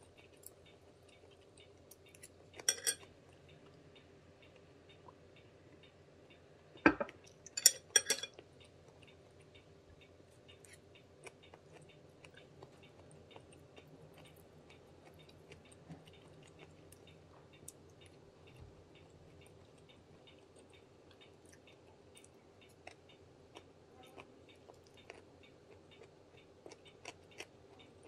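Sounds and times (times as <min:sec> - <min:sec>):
faint eating sounds: 0:00.0 - 0:28.0
faint regular ticking: 0:00.1 - 0:28.0
glass set down on table: 0:06.9 - 0:07.2.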